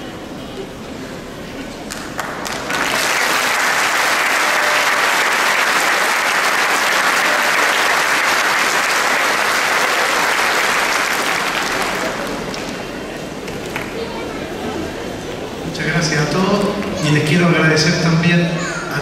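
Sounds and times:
crowd applause in a hall: 0:01.9 - 0:14.7.

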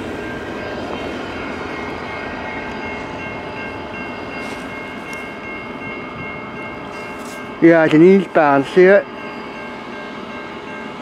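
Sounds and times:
faint steady high tones: 0:00.0 - 0:11.0
freight train rumbling past: 0:00.0 - 0:11.0.

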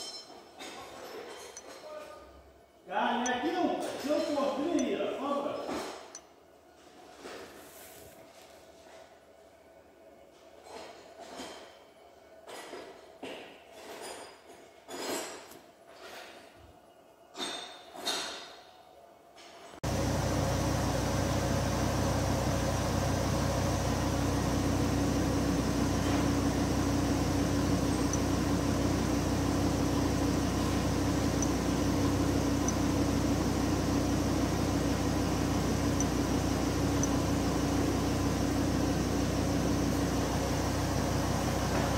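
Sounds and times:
diesel engine idling: 0:19.8 - 0:41.9.

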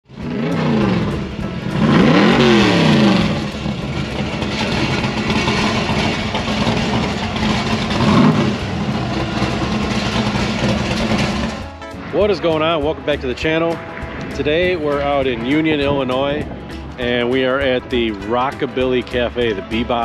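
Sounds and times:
car engine revving: 0:00.0 - 0:11.8
music: 0:00.1 - 0:20.0.

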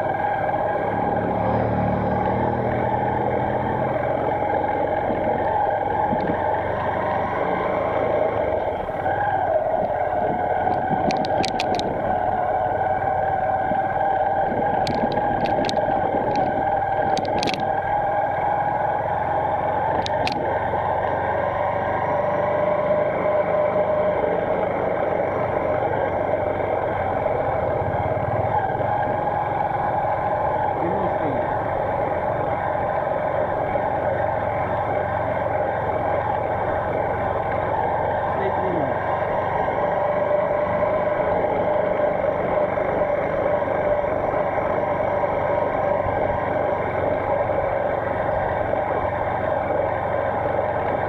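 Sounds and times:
motorcycle engine cruising: 0:00.0 - 0:51.0
road noise: 0:00.0 - 0:51.0.

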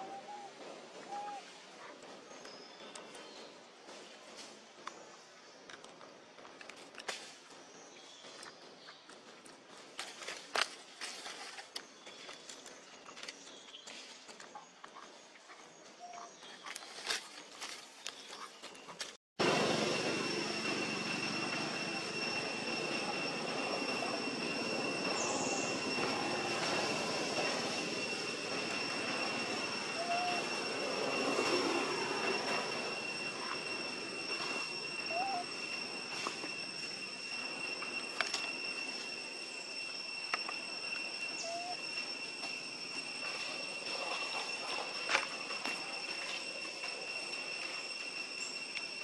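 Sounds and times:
high-pitched whine: 0:19.0 - 0:49.0
insect drone: 0:19.4 - 0:49.0
rushing noise: 0:19.4 - 0:49.0
short rising squeak: 0:19.6 - 0:49.0.

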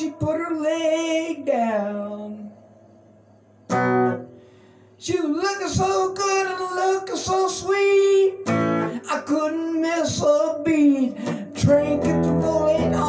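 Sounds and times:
man singing: 0:00.0 - 0:02.5, 0:05.0 - 0:13.0
electric guitar: 0:03.7 - 0:13.0.

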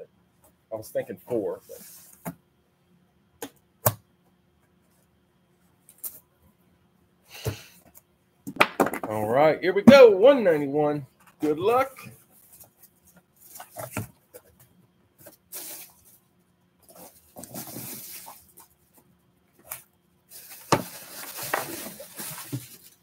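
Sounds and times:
cardboard rustling and scraping: 0:11.4 - 0:16.2, 0:16.8 - 0:23.0.

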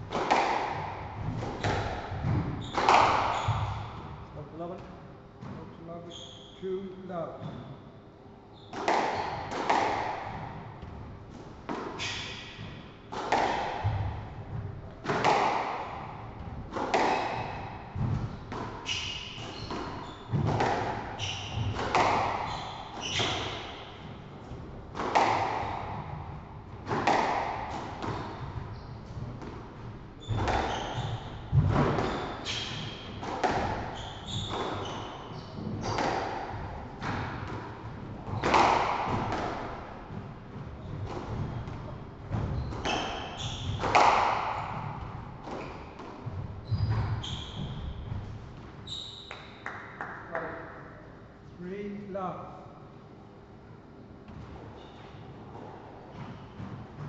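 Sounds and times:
squash ball hitting rackets and walls: 0:00.0 - 0:04.7, 0:08.6 - 0:50.0, 0:54.2 - 0:57.0
shoes squeaking on wooden floor: 0:01.6 - 0:04.0, 0:17.1 - 0:24.1, 0:30.2 - 0:36.1, 0:40.7 - 0:49.4.

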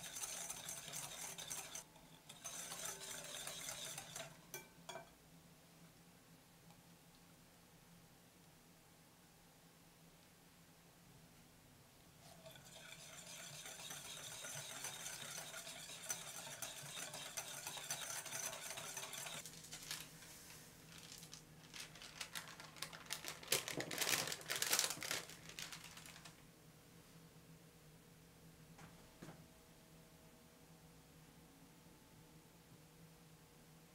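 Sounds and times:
whisk clattering in glass bowl: 0:00.0 - 0:05.1, 0:12.3 - 0:19.4.

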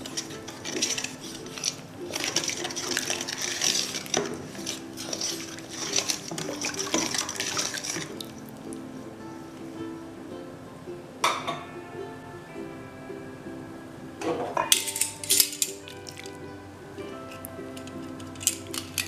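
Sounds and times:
stirring thick sauce: 0:00.0 - 0:08.6, 0:15.8 - 0:16.4.

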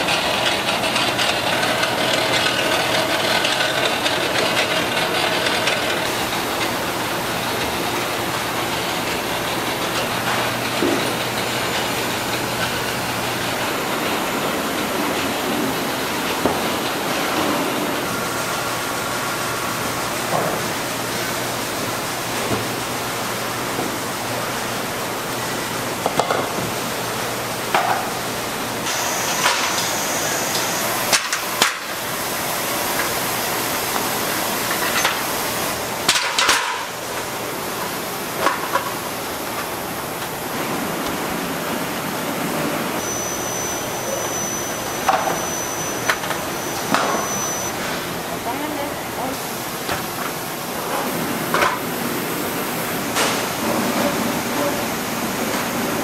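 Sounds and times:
factory machinery noise: 0:00.0 - 0:56.0
thin high tone: 0:43.0 - 0:48.0.

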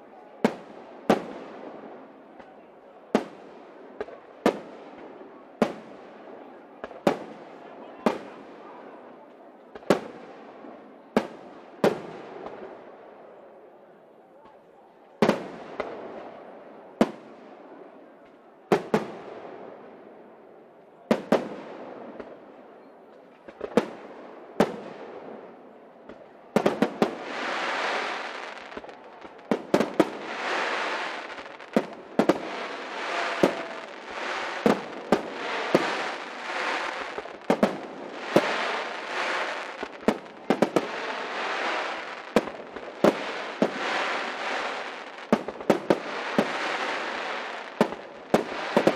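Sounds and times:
firework crackling: 0:26.1 - 0:48.9.

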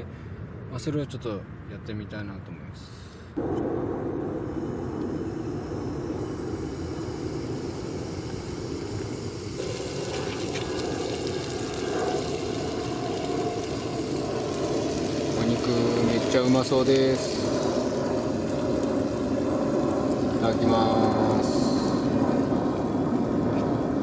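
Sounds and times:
gas burner rushing: 0:03.4 - 0:24.0
meat sizzling in a frying pan: 0:06.9 - 0:24.0.

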